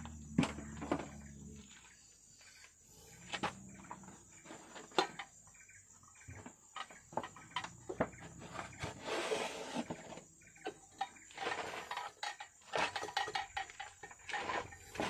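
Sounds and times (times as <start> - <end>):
metal tools clicking and knocking: 10.6 - 15.0.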